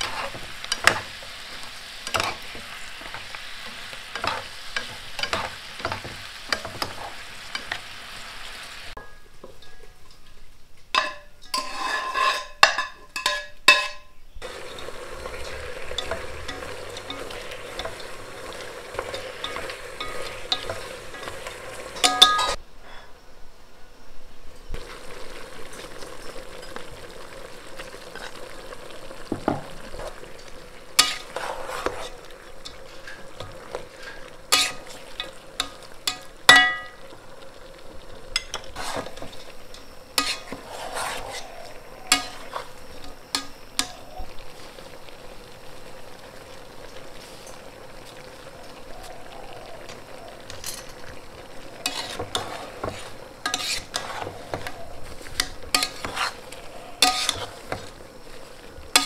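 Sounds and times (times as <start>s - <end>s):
stir-fry sizzling in a pot: 0.0s - 23.0s, 24.7s - 59.0s
spoon scraping and clinking pot: 4.1s - 7.8s, 10.9s - 23.1s, 31.0s - 37.0s, 38.4s - 44.1s, 51.8s - 57.9s.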